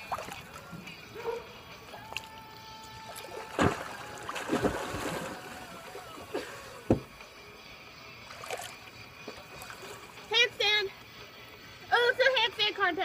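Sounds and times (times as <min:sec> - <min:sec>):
pool water sloshing and splashing: 0:00.0 - 0:00.9, 0:03.0 - 0:07.1, 0:08.2 - 0:10.3.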